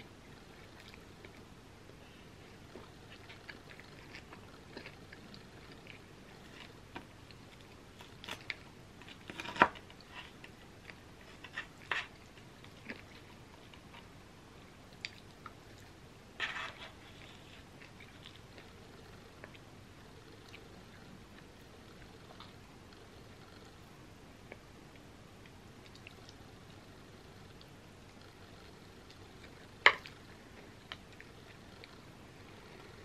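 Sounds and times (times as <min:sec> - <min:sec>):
chewing and mouth sounds: 0:02.4 - 0:14.1, 0:14.9 - 0:16.0, 0:24.5 - 0:26.8.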